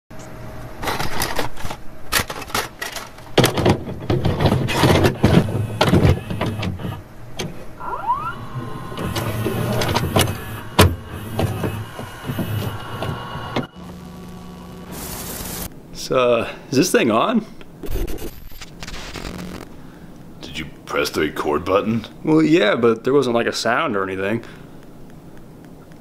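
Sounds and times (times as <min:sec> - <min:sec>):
clunks and clicks of mechanism: 0:00.8 - 0:07.6, 0:08.4 - 0:13.7
short rising whine: 0:07.6 - 0:15.7
small motor whirring: 0:07.8 - 0:15.7.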